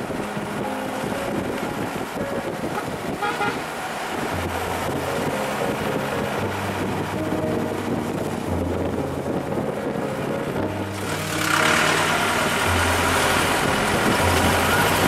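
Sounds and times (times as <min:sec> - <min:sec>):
road and engine noise: 0:00.0 - 0:15.0
vehicle horn toot: 0:02.7 - 0:03.7.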